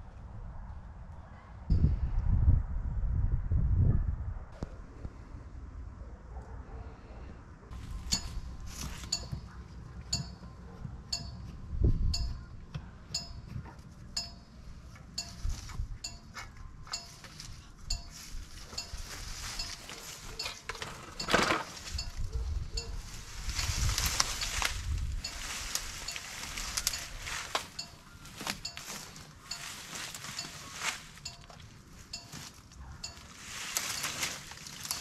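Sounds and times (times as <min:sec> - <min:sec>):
cooling muffler metallic pings: 0:07.8 - 0:35.0
garden hose dragged through grass: 0:18.1 - 0:31.4, 0:32.1 - 0:35.0.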